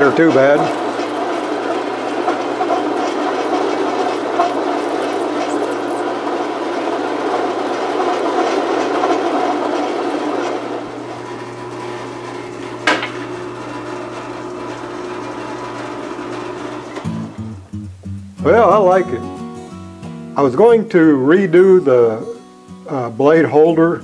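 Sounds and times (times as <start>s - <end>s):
lathe cutting metal rod: 0.0s - 17.4s
lathe motor hum: 0.0s - 17.7s.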